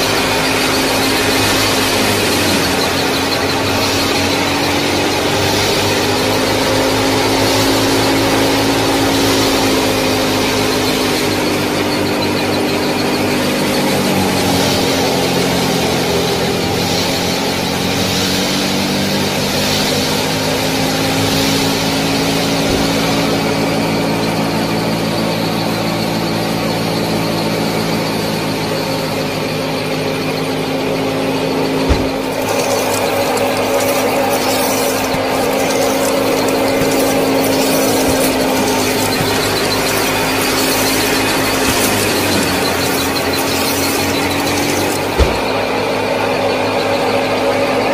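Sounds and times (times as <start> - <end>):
small motor whining: 0.0 - 45.9
rough crackling: 31.9 - 45.7.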